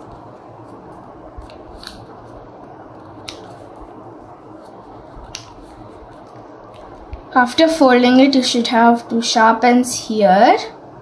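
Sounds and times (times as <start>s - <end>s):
paper being folded: 0.0s - 7.1s
crisp paper clicks: 0.1s - 2.1s.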